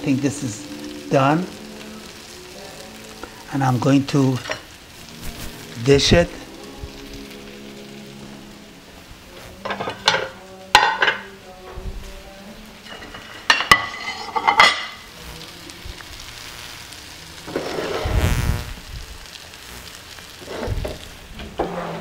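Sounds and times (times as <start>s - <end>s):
faint sizzle from pan: 0.0s - 22.0s
spatula scraping pan and plate: 12.9s - 14.9s, 17.5s - 18.1s, 21.6s - 22.0s.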